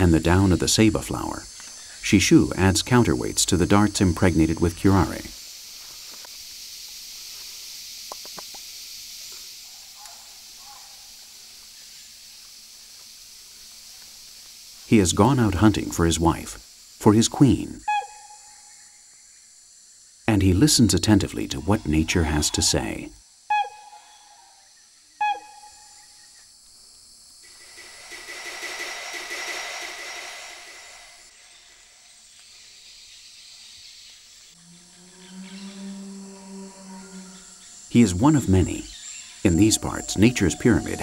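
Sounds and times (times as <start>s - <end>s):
high-pitched insect hiss: 0.0s - 41.0s
bird downward-slurring calls: 17.8s - 18.8s, 23.5s - 24.5s, 25.2s - 26.2s, 34.6s - 41.0s.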